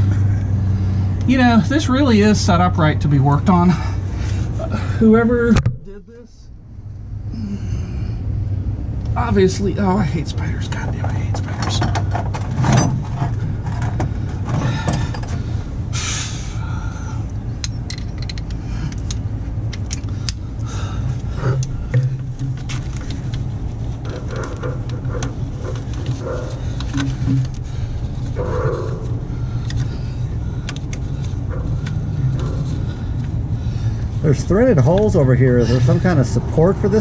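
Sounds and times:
low hum: 0:03.2 - 0:37.0
metallic tool clicks and clinks: 0:17.6 - 0:20.4.

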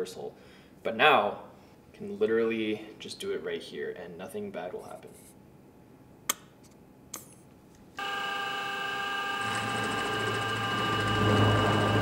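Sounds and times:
end mill cutting metal: 0:08.0 - 0:12.0
milling machine spindle whine: 0:08.0 - 0:12.0.

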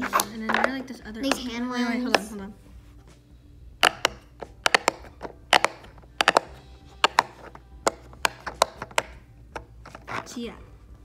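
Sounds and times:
pop-it toy bubbles popping: 0:03.8 - 0:09.1.

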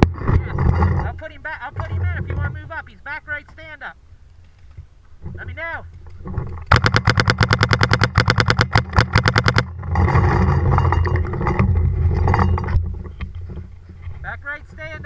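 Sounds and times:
paintball marker rapid firing: 0:06.7 - 0:09.7.

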